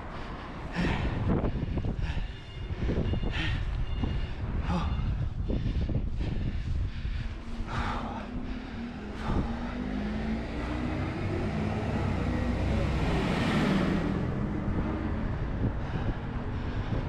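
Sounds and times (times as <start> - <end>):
wind rumble on microphone: 0.0 - 17.0
engine passing by: 7.1 - 17.0.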